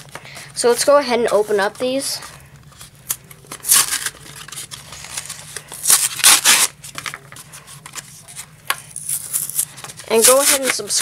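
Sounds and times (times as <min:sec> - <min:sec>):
foil wrapper crinkling and tearing: 0:02.8 - 0:11.0.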